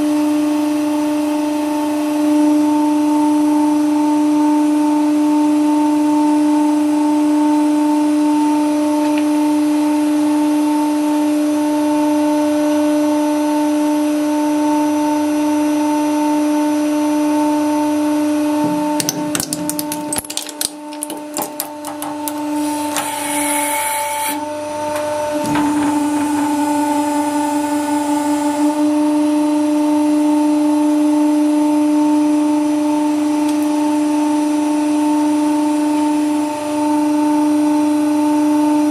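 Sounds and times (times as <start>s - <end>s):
metal cracking and clicking: 18.7s - 23.2s
hydraulic press humming: 20.7s - 29.1s.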